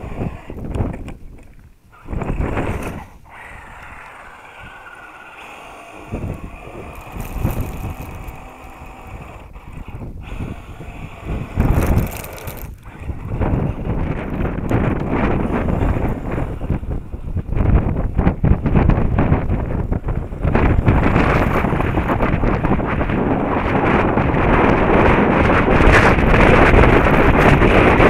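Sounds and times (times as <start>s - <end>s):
toy truck motor whining: 0.0s - 1.1s, 1.9s - 17.5s.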